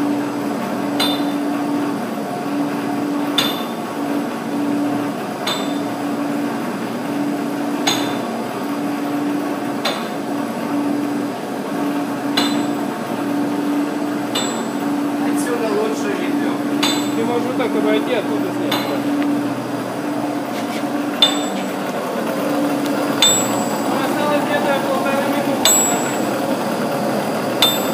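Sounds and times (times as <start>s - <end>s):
heater fan blowing with hum: 0.0s - 27.9s
rotating pipe knocking: 16.6s - 19.5s, 20.5s - 26.6s.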